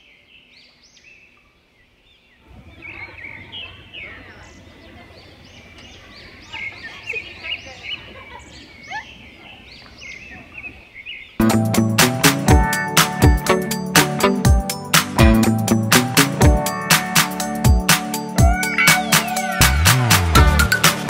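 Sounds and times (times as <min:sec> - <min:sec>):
music with plucked strings and beat: 0:11.4 - 0:21.0.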